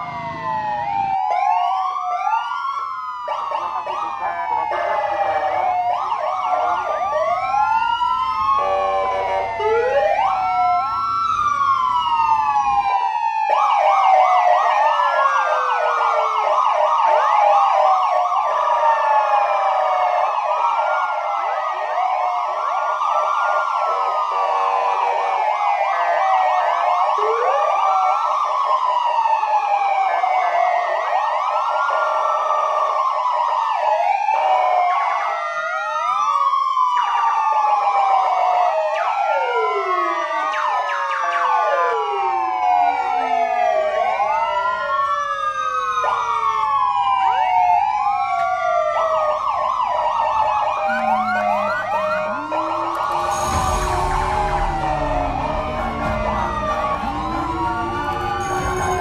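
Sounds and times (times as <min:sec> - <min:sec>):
yelping siren warble: 0:00.0 - 0:13.8, 0:26.9 - 0:28.2, 0:39.0 - 0:59.0
police sirens wailing: 0:00.0 - 0:59.0.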